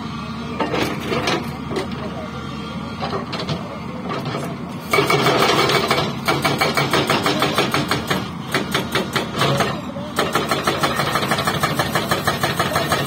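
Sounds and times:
excavator engine: 0.0 - 13.0
hydraulic breaker hammering rock: 4.2 - 13.0.

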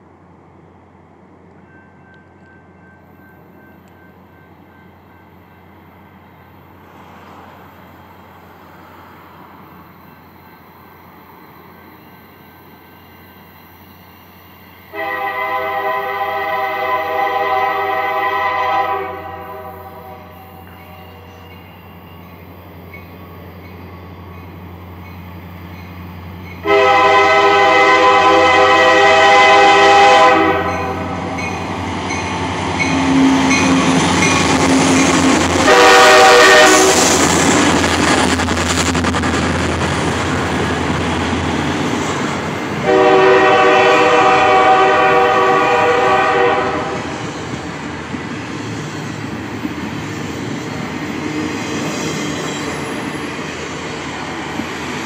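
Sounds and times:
locomotive air horn blasts: 14.9 - 21.4, 26.6 - 31.4, 35.6 - 37.1, 42.8 - 47.1
freight train wheels clattering: 30.5 - 42.9.

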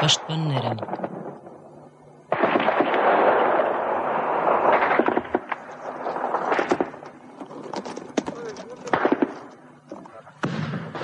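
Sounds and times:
heavy gunfire: 2.3 - 5.6, 8.9 - 9.4.

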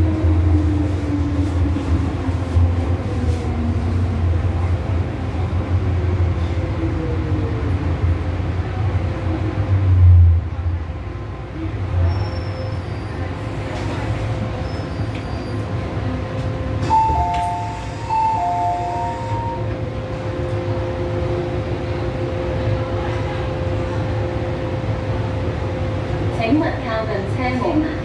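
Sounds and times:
train rumble and hum: 0.0 - 28.0
two-tone door chime: 16.8 - 19.6.

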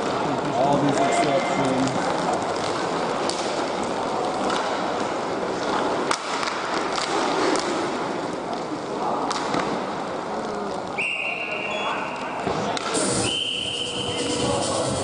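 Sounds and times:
skates scraping on ice: 0.0 - 9.0
hockey sticks and puck clicking: 0.0 - 11.4, 12.0 - 13.2.

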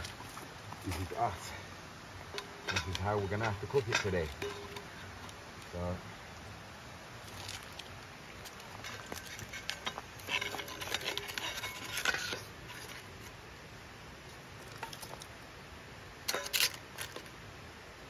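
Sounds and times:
firewood knocking in metal bowl: 2.2 - 5.0, 8.5 - 13.1.

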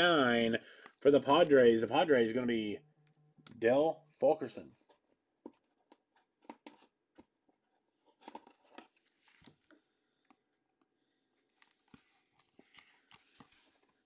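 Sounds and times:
plastic sleeve rustling and clicks: 0.8 - 1.8, 8.0 - 10.4, 11.5 - 14.0.

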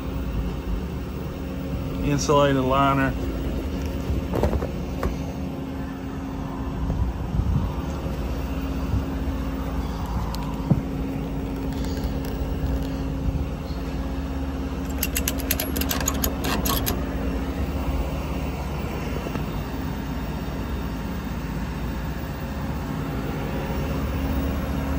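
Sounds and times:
diesel engine idling: 0.0 - 24.9
quick clicks: 14.8 - 17.1.

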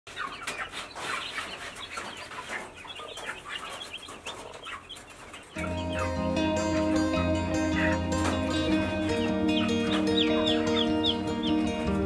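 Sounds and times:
chicks peeping: 0.1 - 12.0
music: 5.6 - 12.0.

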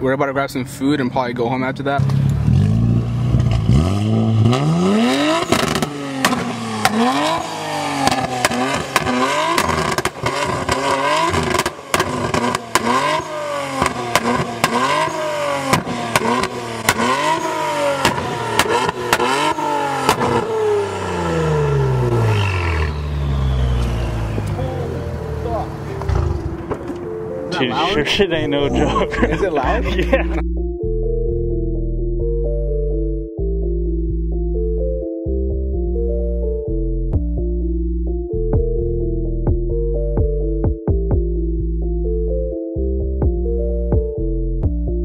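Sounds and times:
car engine revving: 1.9 - 30.4
exhaust pops and crackles: 5.4 - 7.4, 8.0 - 17.4, 18.0 - 20.5.

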